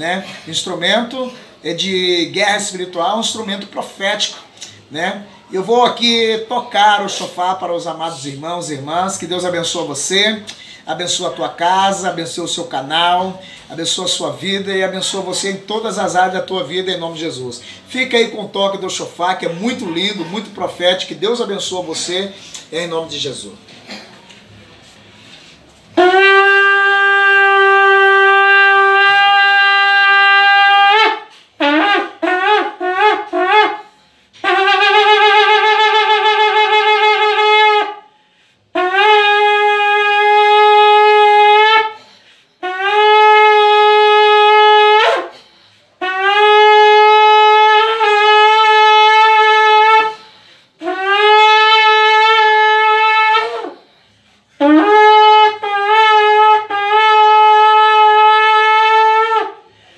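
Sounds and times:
breaths: 0.2s - 0.5s, 1.2s - 1.6s, 10.5s - 10.9s, 13.4s - 13.7s, 17.6s - 17.9s, 22.3s - 22.7s, 23.7s - 25.9s, 33.8s - 34.4s, 38.0s - 38.8s, 42.0s - 42.6s, 45.3s - 46.0s, 50.1s - 50.8s, 53.7s - 54.6s, 59.6s - 59.9s
shofar blasts: 25.8s - 38.1s, 38.7s - 59.8s.

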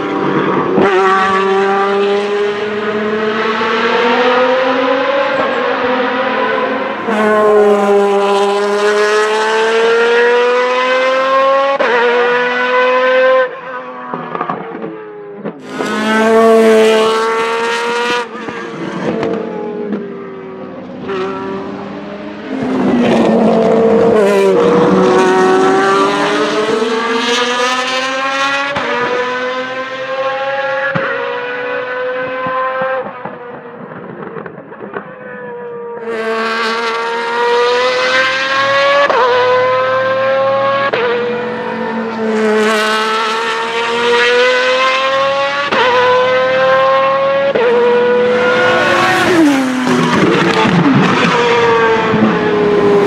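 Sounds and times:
racing car engine passing: 15.6s - 33.0s, 36.1s - 53.0s.

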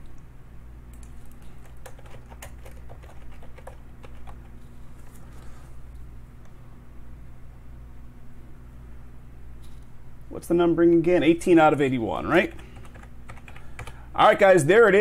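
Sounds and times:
keyboard typing clicks: 12.5s - 14.0s.

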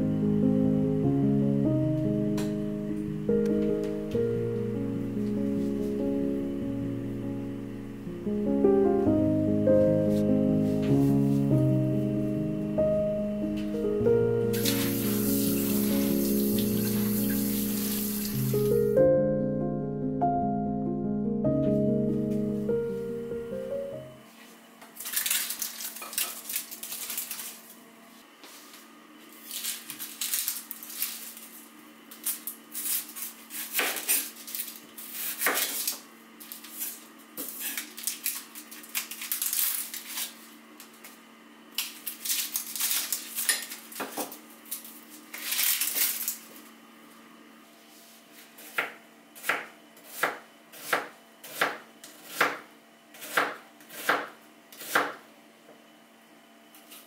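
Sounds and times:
onion skin rustling: 25.0s - 27.7s, 29.4s - 40.5s, 41.8s - 44.0s, 44.7s - 46.5s.

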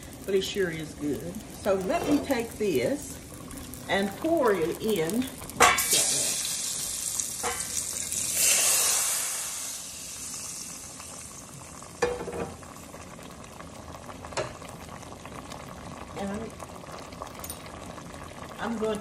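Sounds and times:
grease sizzling in a pot: 0.0s - 19.0s
metal pans clanking: 1.8s - 2.4s, 12.0s - 12.6s.

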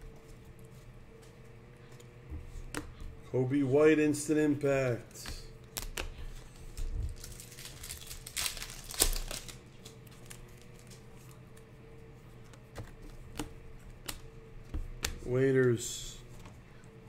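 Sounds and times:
faint steady hum: 0.0s - 17.0s
cellophane wrapper crinkling and tearing: 7.0s - 11.0s.

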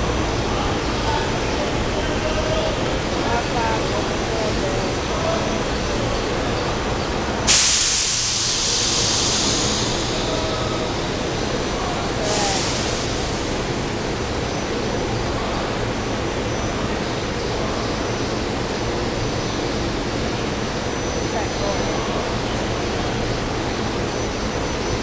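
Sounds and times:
low hum of railcars: 0.0s - 25.0s
compressed air hissing: 7.5s - 14.0s.

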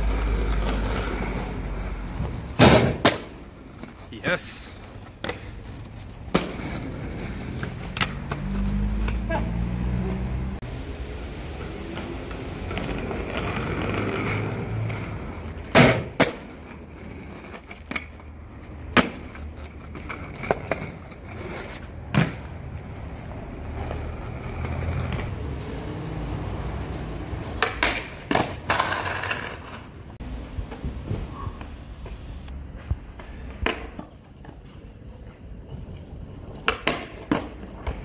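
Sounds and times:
skate wheels rolling on concrete: 0.0s - 38.0s
skateboard tricks clacking on ledges: 27.6s - 29.9s.

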